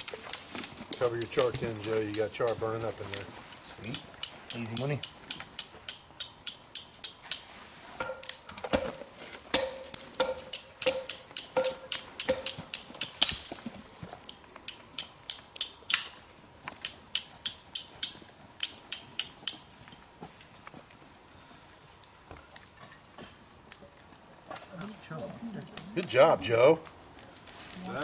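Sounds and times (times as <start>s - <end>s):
steel striking flint: 3.8s - 13.4s, 16.8s - 19.7s.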